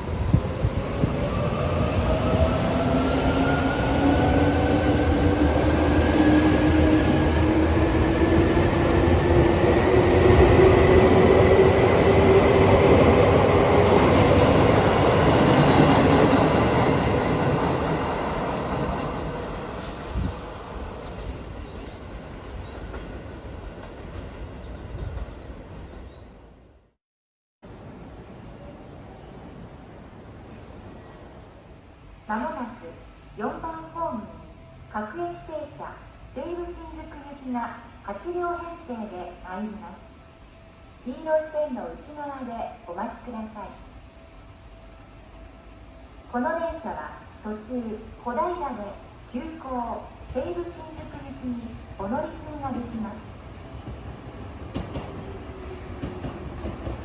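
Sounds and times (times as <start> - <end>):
train wheels on rails: 53.5 - 57.0.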